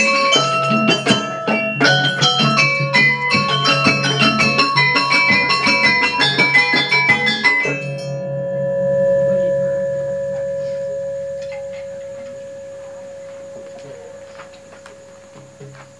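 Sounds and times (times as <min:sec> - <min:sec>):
gamelan ensemble playing: 0:00.0 - 0:15.6
gong ringing: 0:06.9 - 0:15.9.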